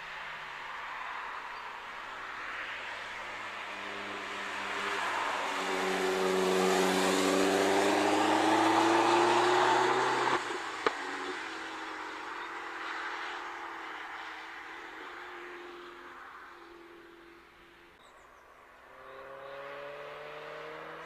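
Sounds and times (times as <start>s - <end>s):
car engine accelerating past: 4.0s - 10.6s, 18.8s - 21.0s.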